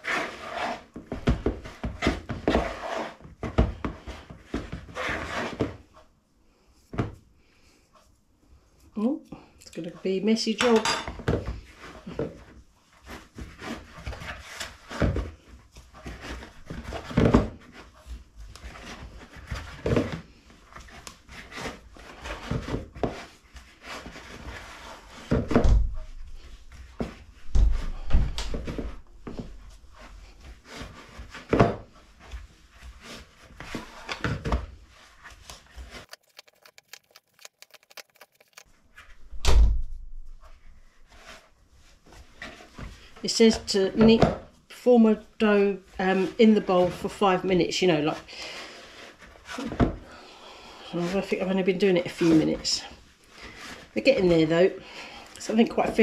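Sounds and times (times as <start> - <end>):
dough kneaded by hand thumping: 21.3 - 34.8.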